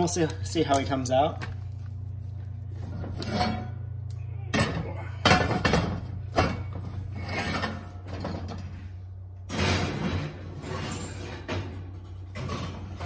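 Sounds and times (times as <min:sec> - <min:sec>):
steady low hum: 0:00.0 - 0:13.0
cast iron clanking and scraping: 0:02.8 - 0:03.9, 0:04.5 - 0:08.8.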